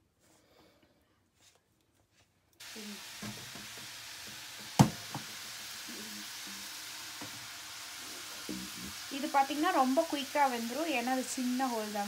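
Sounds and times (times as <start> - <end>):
dough sizzling in hot oil: 2.6 - 12.0
sharp knock: 4.8 - 5.3.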